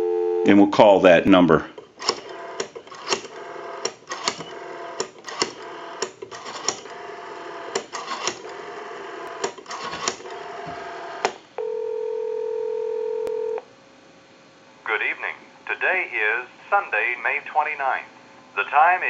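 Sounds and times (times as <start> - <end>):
telephone ringback tone: 0.0 - 0.6, 11.6 - 13.6.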